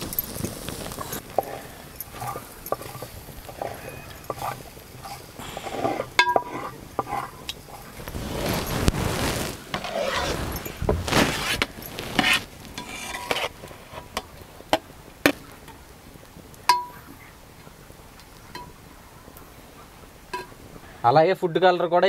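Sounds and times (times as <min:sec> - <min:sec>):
ladle scraping in a metal pot: 0:01.0 - 0:14.2.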